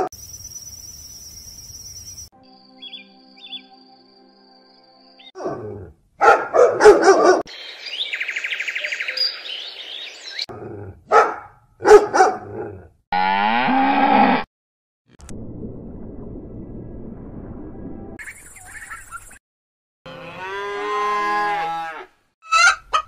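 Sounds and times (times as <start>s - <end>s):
cattle mooing: 13.1s - 14.4s, 20.1s - 22.1s.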